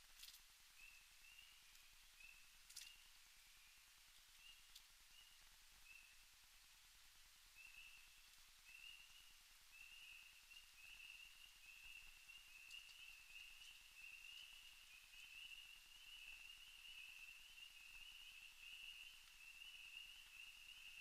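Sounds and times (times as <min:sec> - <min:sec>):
faint ticks: 0:00.0 - 0:00.5, 0:01.7 - 0:01.9, 0:02.6 - 0:03.2, 0:04.1 - 0:05.6, 0:11.3 - 0:15.7.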